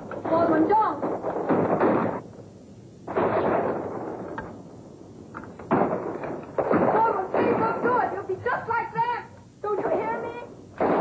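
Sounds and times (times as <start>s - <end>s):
explosion blasts: 0.3s - 2.2s, 3.1s - 4.4s, 10.8s - 11.0s.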